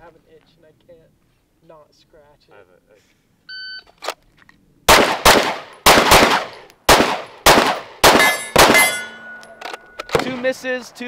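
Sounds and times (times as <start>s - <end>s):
pistol shots in quick pairs: 4.9s - 9.2s
steel targets ringing: 8.1s - 10.5s.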